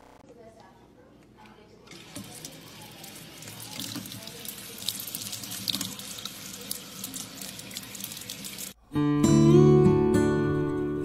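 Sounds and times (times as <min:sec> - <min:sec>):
faucet water splashing into sink: 0:01.9 - 0:08.8.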